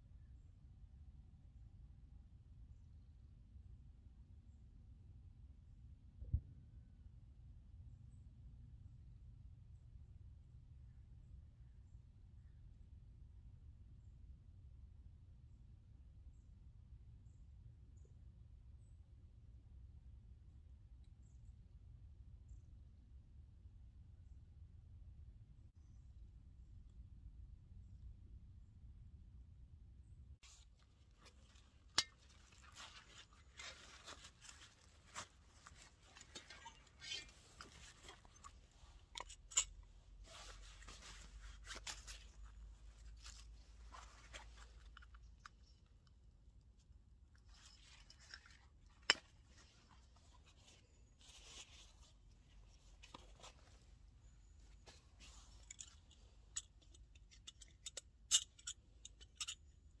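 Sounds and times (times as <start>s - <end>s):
soft rustling: 30.4s - 46.0s, 47.4s - 57.6s
sharp clicks and metal clinks: 31.2s - 39.9s, 55.5s - 59.9s.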